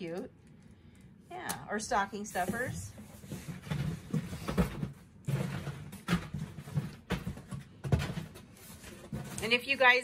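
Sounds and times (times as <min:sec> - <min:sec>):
items knocking in cardboard box: 0:03.3 - 0:09.6.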